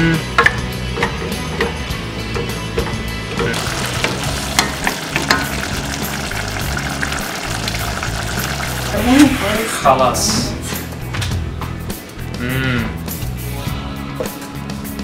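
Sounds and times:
food sizzling in a saucepan: 3.6s - 10.0s.

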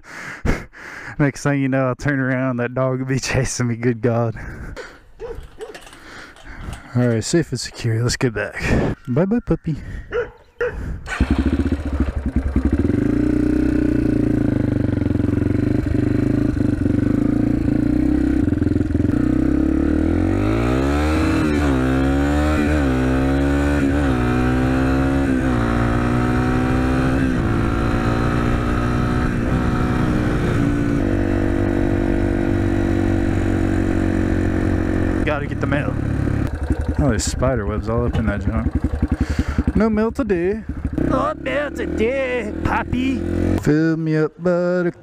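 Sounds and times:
dirt bike engine revving: 11.0s - 43.9s.

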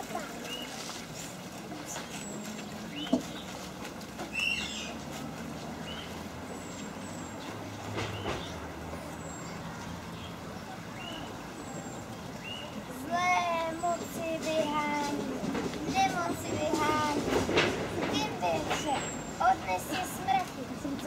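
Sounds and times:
distant traffic rumble: 0.0s - 21.0s
birds chirping: 1.9s - 5.1s, 5.8s - 17.2s.

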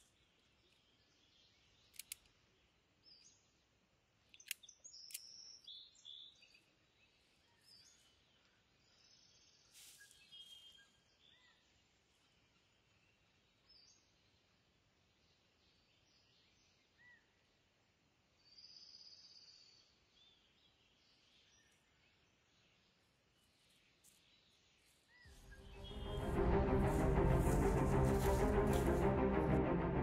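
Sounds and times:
sharp clicks: 1.9s - 2.4s, 4.3s - 5.3s
bird chirps: 4.3s - 11.8s, 18.4s - 26.2s.

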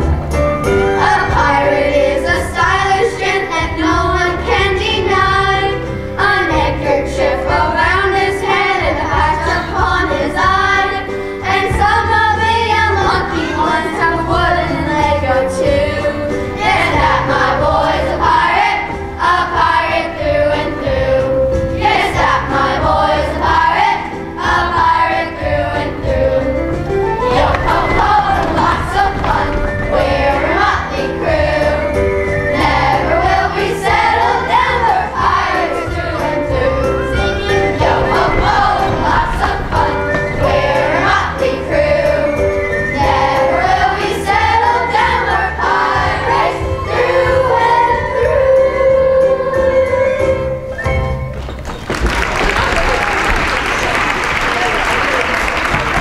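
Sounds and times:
children's choir singing: 0.0s - 50.7s
instrumental accompaniment with bass: 0.0s - 52.9s.

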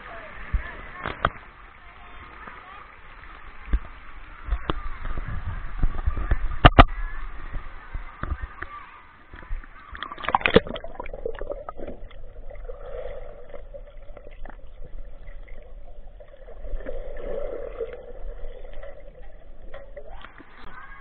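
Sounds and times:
underwater water rush: 0.0s - 21.0s
small underwater clicks and gurgles: 3.3s - 7.0s, 7.9s - 21.0s.

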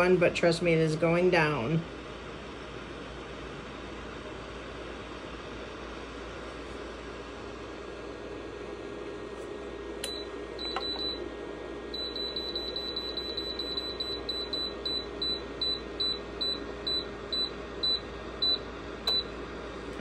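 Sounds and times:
heater fan humming: 0.0s - 20.0s
control panel beeping: 10.0s - 11.2s, 12.0s - 19.3s.

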